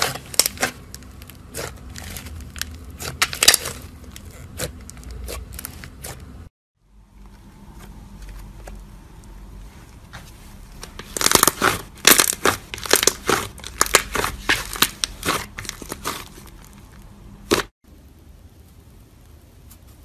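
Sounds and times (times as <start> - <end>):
slime crackling and popping: 0.0 - 6.2, 11.0 - 17.7.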